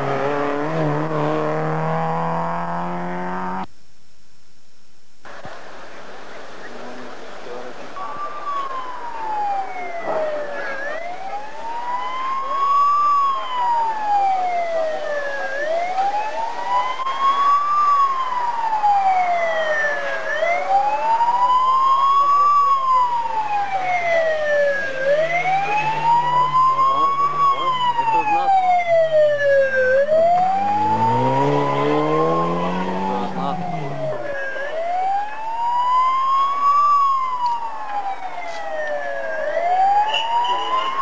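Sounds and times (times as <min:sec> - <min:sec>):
faint engine: 0:00.0 - 0:03.7, 0:22.1 - 0:40.2
wail siren: 0:08.0 - 0:41.0.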